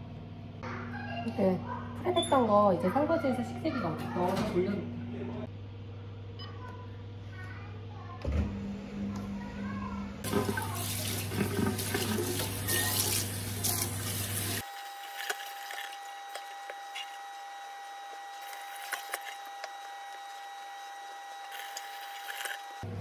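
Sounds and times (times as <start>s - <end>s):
tap water splashing in a metal sink: 10.3s - 14.6s.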